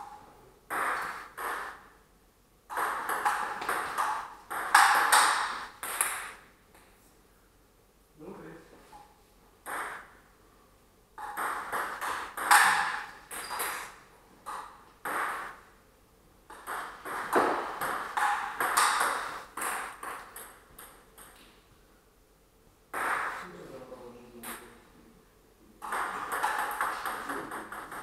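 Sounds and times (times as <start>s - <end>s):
ball bouncing on table: 2.7s - 6.4s, 9.6s - 10.1s, 11.2s - 13.9s, 16.5s - 21.5s, 23.0s - 23.4s, 25.8s - 28.0s
ball clicking off paddles: 2.7s - 6.4s, 11.2s - 15.5s, 16.5s - 21.5s, 25.8s - 28.0s.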